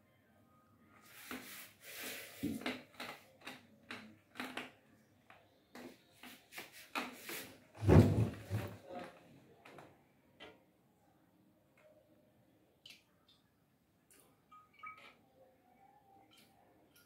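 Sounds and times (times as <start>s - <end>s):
plastic tub handling noise: 6.6s - 9.1s.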